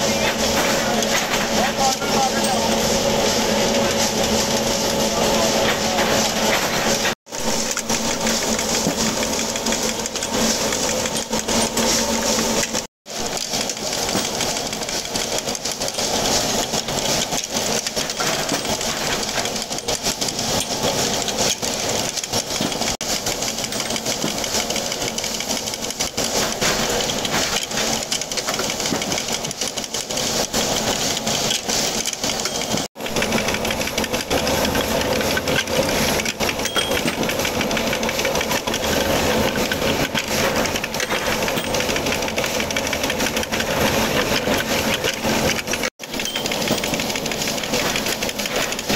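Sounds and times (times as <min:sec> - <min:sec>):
threading machine clattering: 0:12.6 - 0:48.9.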